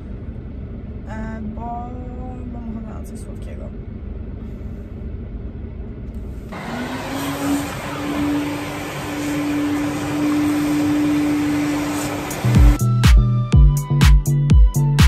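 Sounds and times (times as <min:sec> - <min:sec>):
vacuum cleaner whining: 0:06.5 - 0:12.8
music: 0:12.3 - 0:15.0.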